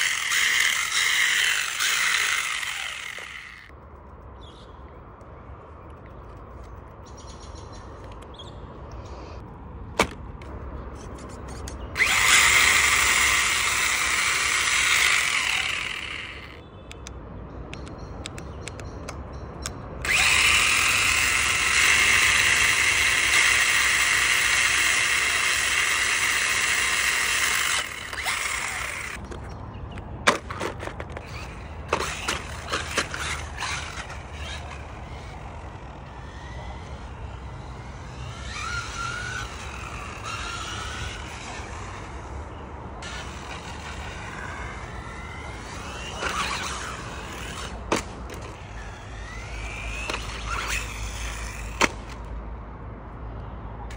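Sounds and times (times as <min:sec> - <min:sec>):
electric motor whining: 0:00.0 - 0:03.7, 0:12.0 - 0:16.6, 0:20.0 - 0:29.3, 0:31.2 - 0:42.2, 0:43.0 - 0:51.8.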